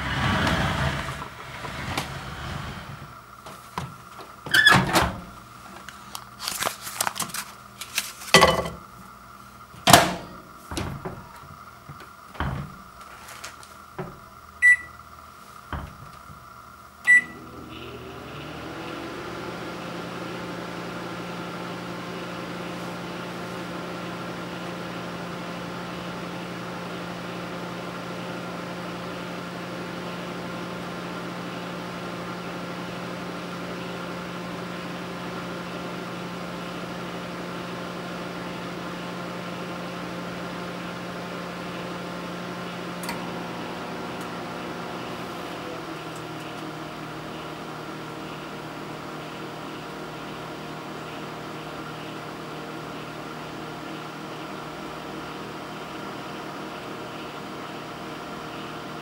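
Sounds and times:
microwave oven humming: 0.0s - 59.0s
short keypad beeps: 14.6s - 15.0s, 17.1s - 17.4s.

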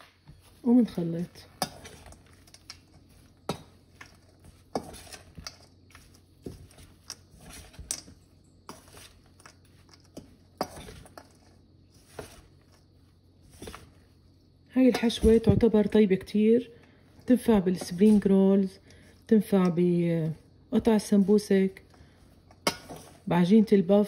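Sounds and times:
utensil scraping a bowl: 1.4s - 8.1s.

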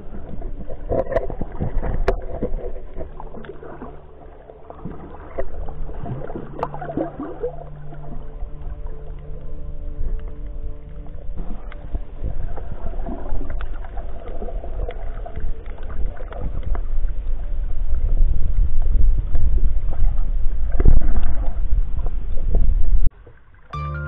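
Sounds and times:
clicks and gurgling underwater: 0.0s - 23.7s
muffled underwater rumble: 0.0s - 23.8s
background music: 23.8s - 24.0s.

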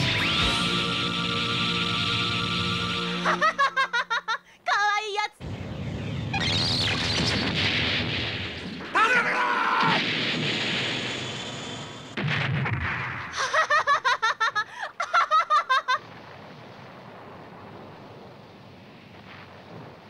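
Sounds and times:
woman cackling laugh: 3.2s - 4.5s, 13.4s - 16.0s
explosion: 5.4s - 14.0s, 16.0s - 20.0s.

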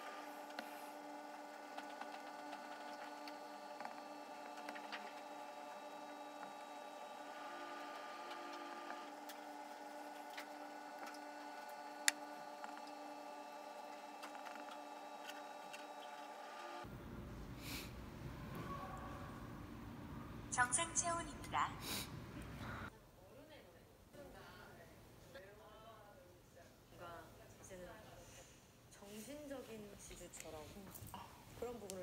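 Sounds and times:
steady hum: 0.0s - 22.9s.

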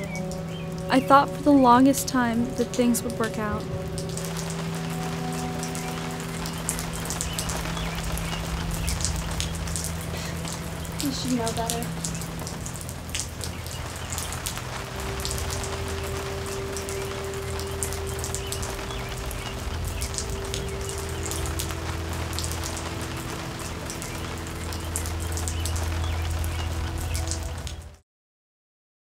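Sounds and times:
low droning tones: 0.0s - 28.0s
rain pattering: 0.0s - 28.0s.

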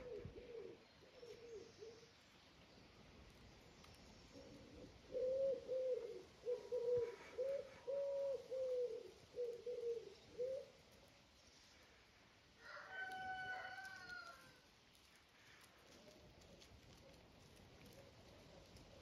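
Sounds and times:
bird cooing: 0.0s - 2.1s, 4.3s - 10.8s.

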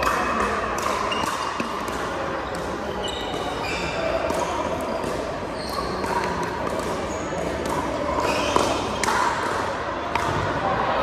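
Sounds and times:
shoes squeaking on floor: 2.4s - 6.3s, 7.0s - 9.0s.

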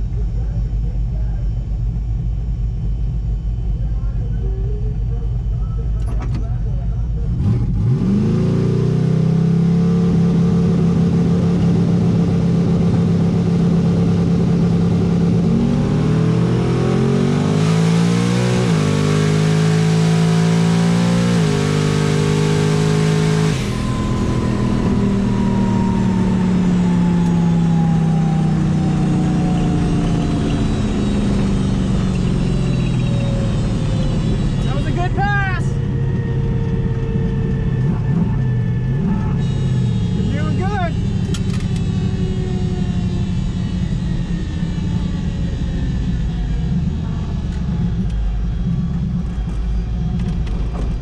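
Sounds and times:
engine accelerating hard: 0.0s - 51.0s
high whine falling in pitch: 10.6s - 50.0s.

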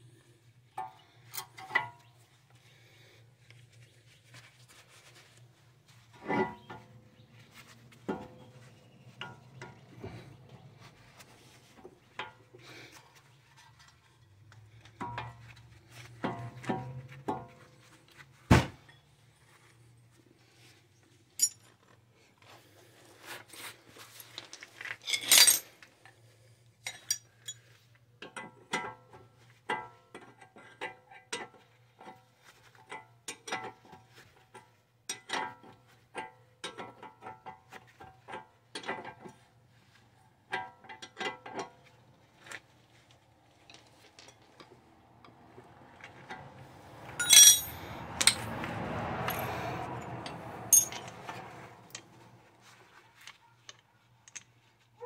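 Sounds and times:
metallic clinks of hand tools: 47.2s - 48.4s, 50.7s - 51.2s.

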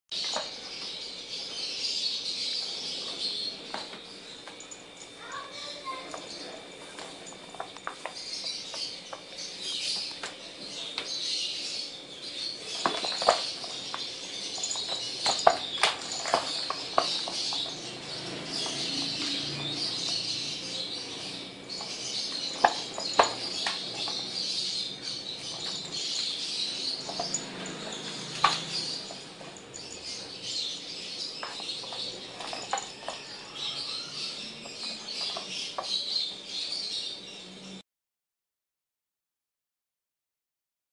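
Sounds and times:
high chirping: 10.8s - 36.9s.

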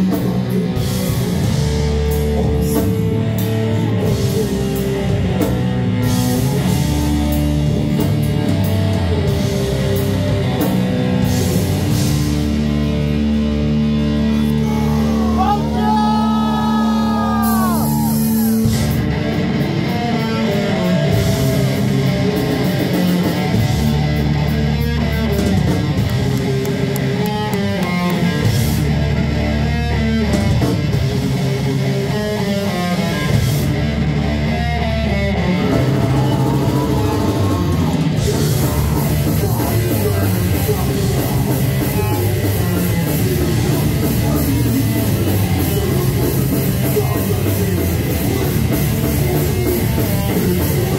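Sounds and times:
bass guitar: 0.0s - 50.9s
distorted electric guitars: 0.0s - 50.9s
drum kit: 0.0s - 50.9s.

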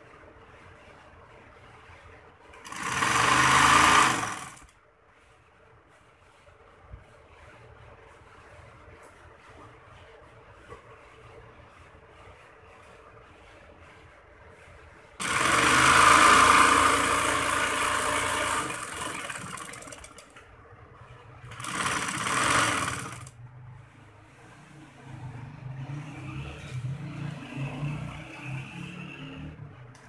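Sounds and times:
sewing machine stitching: 2.5s - 4.8s, 15.2s - 20.4s, 21.1s - 23.4s.

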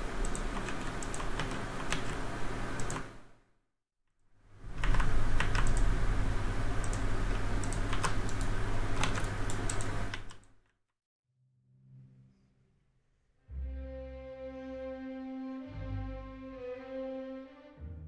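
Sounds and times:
computer fans whirring: 0.0s - 3.4s, 4.4s - 10.5s
keyboard keystrokes clicking: 0.2s - 2.2s, 2.8s - 3.2s, 4.7s - 5.9s, 6.8s - 10.5s
mouse clicks: 6.8s - 10.5s.

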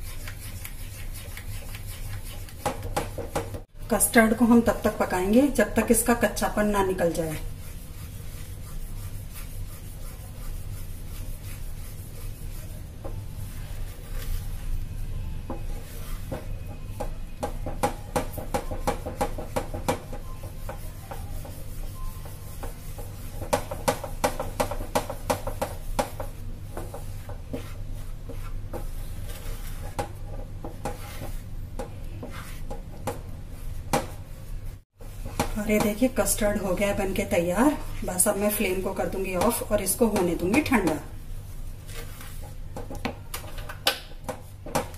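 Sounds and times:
wooden spatula scraping a pan: 6.8s - 14.9s, 15.5s - 43.0s.

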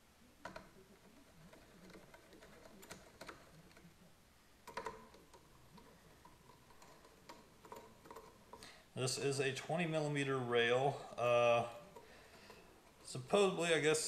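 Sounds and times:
faint metal clicks and taps: 0.4s - 3.9s, 4.6s - 8.8s.

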